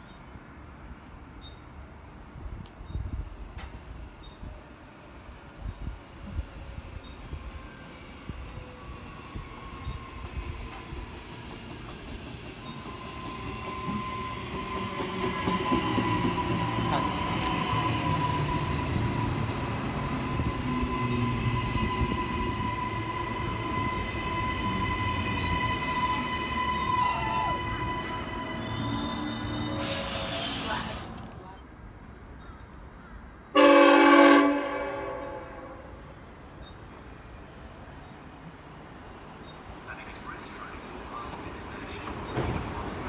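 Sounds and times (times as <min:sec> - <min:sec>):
train running past: 0:03.2 - 0:31.6, 0:33.5 - 0:43.0
high wheel squeal: 0:12.6 - 0:31.1.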